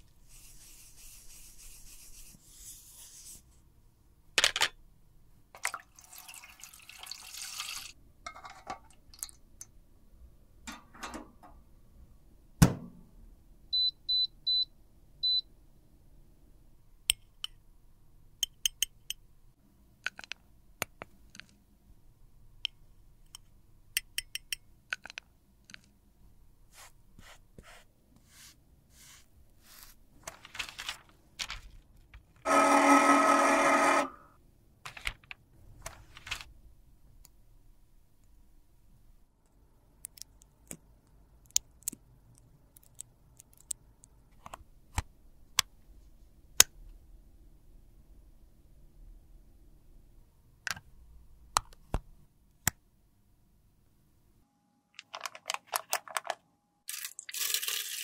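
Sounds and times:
scraping and rubbing: 0:00.1 - 0:03.6.

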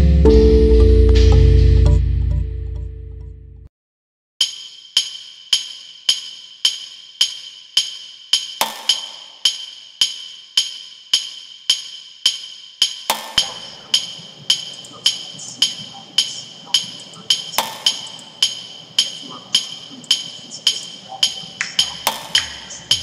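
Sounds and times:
ringing percussive hits: 0:00.3 - 0:02.3, 0:04.4 - 0:23.0
rough hissing texture: 0:13.4 - 0:23.0.

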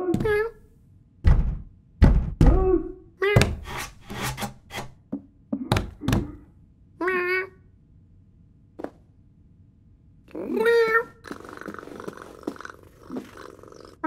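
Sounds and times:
cartoon cat meowing: 0:07.0 - 0:07.6.

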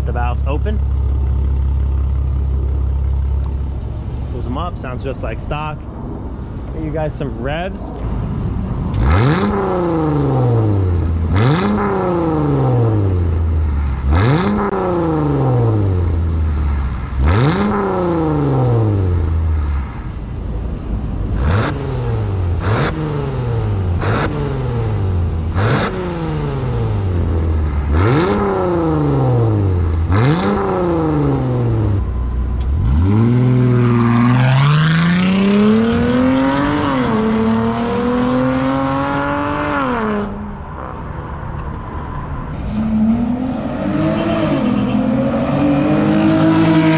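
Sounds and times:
car engine revving: 0:00.0 - 0:20.3, 0:21.2 - 0:46.9
car accelerating away: 0:08.9 - 0:19.9, 0:21.3 - 0:41.0, 0:42.6 - 0:46.9.

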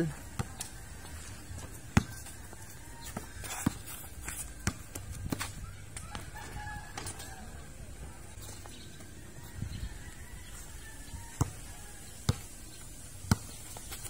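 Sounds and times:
basketball bouncing on concrete: 0:00.2 - 0:07.6, 0:11.3 - 0:11.6, 0:12.2 - 0:14.0
ball hitting rim: 0:04.6 - 0:07.6
rooster crowing: 0:06.0 - 0:08.0, 0:09.3 - 0:12.2.

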